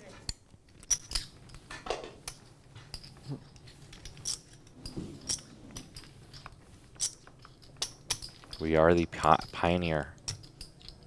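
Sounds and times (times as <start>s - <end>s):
poker chips clicking: 0.3s - 1.6s, 5.2s - 11.0s.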